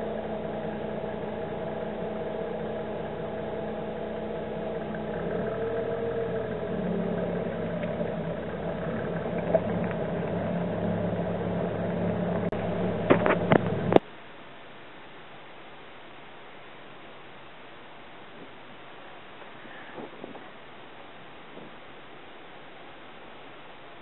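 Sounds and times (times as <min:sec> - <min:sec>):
car engine humming: 0:00.0 - 0:14.1
tyres on gravel road: 0:00.0 - 0:24.0
faint hiss: 0:10.4 - 0:24.0.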